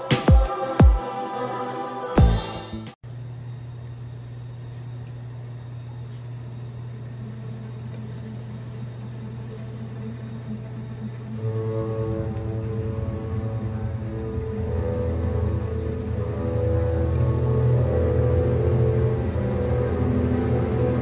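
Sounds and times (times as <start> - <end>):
electronic music: 0.0 - 3.0, 9.7 - 21.0
aquarium pumps humming: 3.0 - 21.0.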